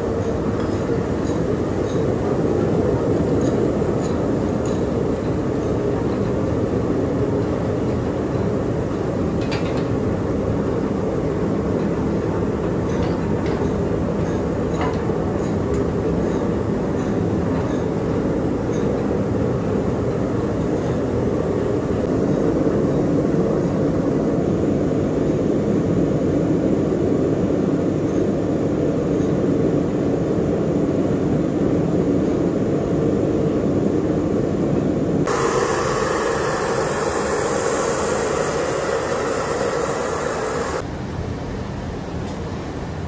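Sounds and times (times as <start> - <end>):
harsh hiss: 35.3 - 40.8.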